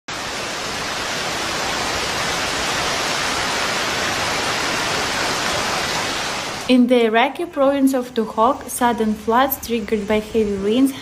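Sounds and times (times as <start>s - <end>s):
floodwater rushing: 0.1s - 6.7s.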